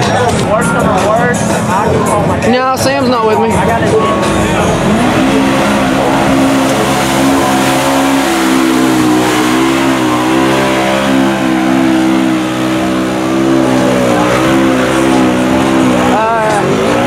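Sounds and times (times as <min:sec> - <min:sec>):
engine at high revs: 0:02.9 - 0:17.0.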